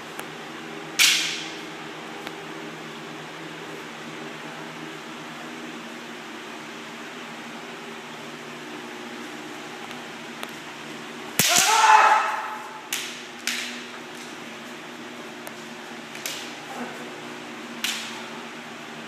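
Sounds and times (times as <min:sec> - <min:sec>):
bamboo sword strikes: 0:01.0 - 0:01.6, 0:11.4 - 0:13.8, 0:17.8 - 0:18.2
person shouting: 0:11.4 - 0:12.8.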